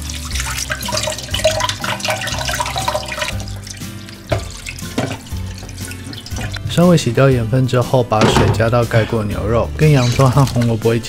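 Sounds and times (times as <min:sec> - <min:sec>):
background music: 0:00.0 - 0:11.0
tap running into steel pot: 0:04.0 - 0:06.7.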